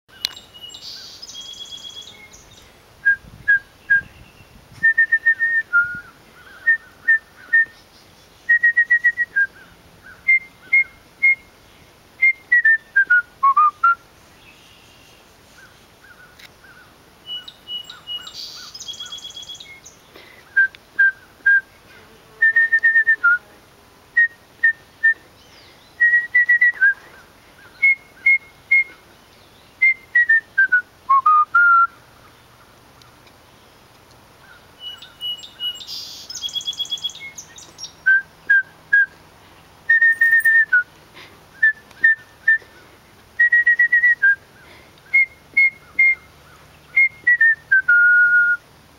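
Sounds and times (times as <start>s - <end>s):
bird calling: 0.1s - 2.7s, 14.4s - 23.3s, 34.4s - 38.6s, 39.9s - 40.8s
person whistling a tune: 4.8s - 6.1s, 8.5s - 9.5s, 12.2s - 14.0s, 22.4s - 23.4s, 26.0s - 27.1s, 27.8s - 29.0s, 29.8s - 31.9s, 39.9s - 40.8s, 41.6s - 42.7s, 43.4s - 44.4s, 45.1s - 46.2s, 47.0s - 48.6s.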